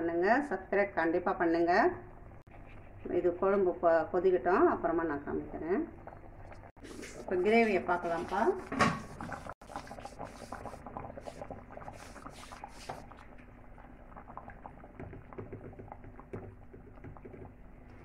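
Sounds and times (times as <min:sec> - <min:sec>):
thick gravy bubbling and popping: 0:05.2 - 0:18.0
wooden spatula stirring: 0:06.8 - 0:13.5.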